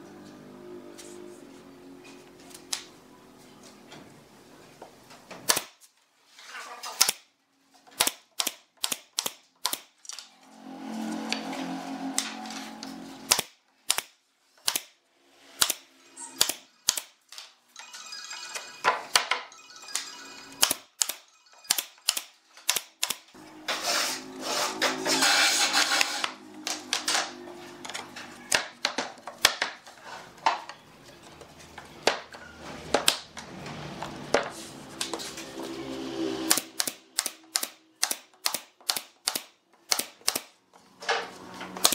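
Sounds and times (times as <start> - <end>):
nail gun shots: 5.4 - 5.8, 8.0 - 9.9, 13.3 - 15.0, 36.5 - 40.5.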